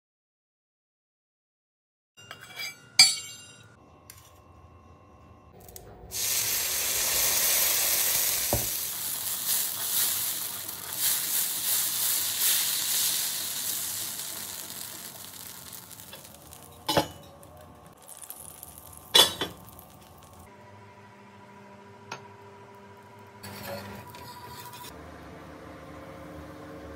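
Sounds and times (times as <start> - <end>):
sharp metal clink: 2.2 - 3.8
batter sizzling on a griddle: 6.1 - 20.5.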